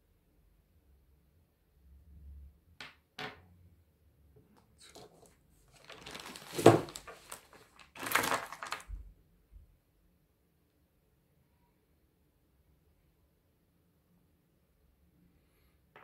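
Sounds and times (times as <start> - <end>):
plastic bag rustling: 4.8 - 9.0.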